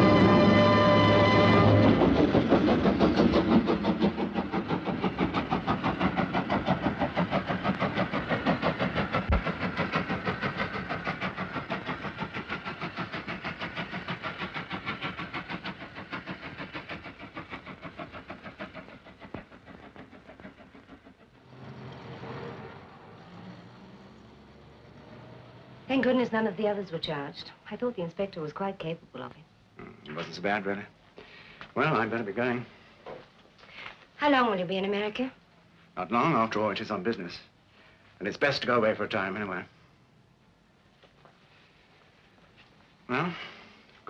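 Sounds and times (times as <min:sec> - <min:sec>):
train wheels clattering on rails: 0:00.0 - 0:27.4.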